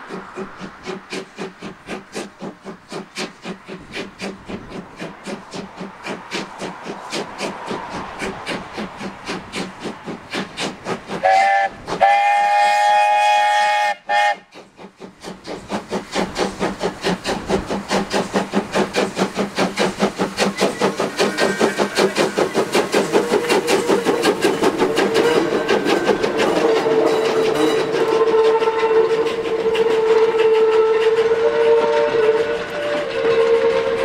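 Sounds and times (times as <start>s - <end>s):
steam locomotive chuffing: 0.0s - 34.0s
steam whistle: 11.2s - 14.5s, 26.6s - 34.0s.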